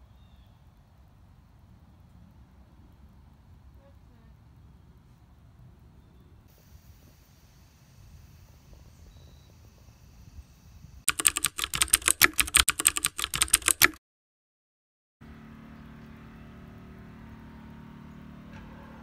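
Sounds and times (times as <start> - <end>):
keyboard typing clicks: 11.1 - 14.0.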